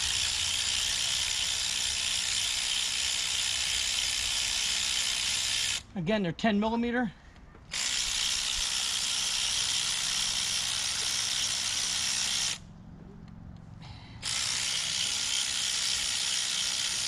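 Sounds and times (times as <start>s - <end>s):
electric ratchet whirring: 0.0s - 5.9s, 7.7s - 12.7s, 14.2s - 17.0s.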